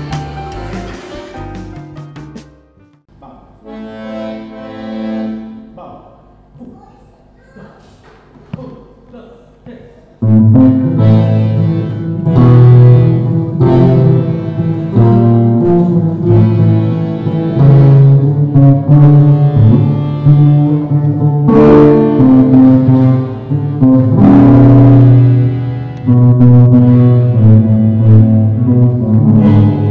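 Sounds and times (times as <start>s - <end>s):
squeezebox chords: 3.5s - 5.8s, 10.2s - 29.9s
acoustic guitars: 10.2s - 29.9s
low bass line: 10.2s - 29.9s.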